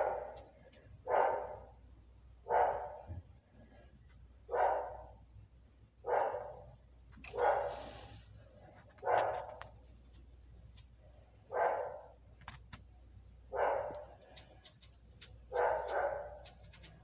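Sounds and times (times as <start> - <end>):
dog barking: 0.0 - 1.8, 2.4 - 3.1, 4.5 - 5.2, 6.0 - 7.8, 9.0 - 9.7, 11.5 - 12.2, 13.5 - 14.2, 15.5 - 16.6.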